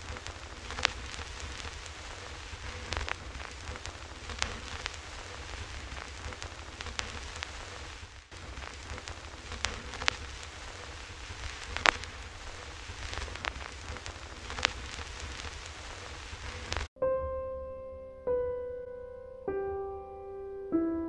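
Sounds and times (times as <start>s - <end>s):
rain drops ticking: 0.0s - 16.9s
rain hissing: 0.0s - 16.9s
piano note ringing: 17.0s - 21.0s.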